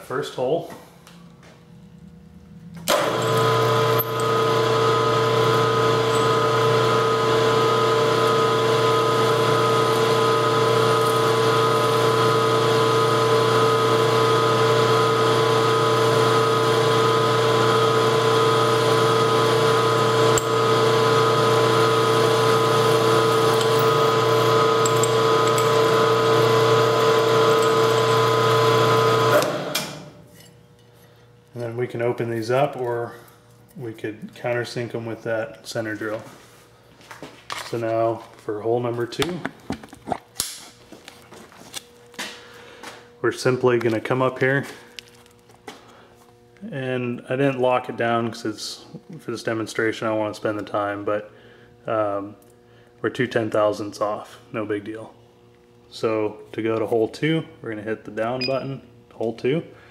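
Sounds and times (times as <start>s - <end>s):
drill cutting into metal: 2.9s - 30.0s
milling machine spindle running: 2.9s - 30.0s.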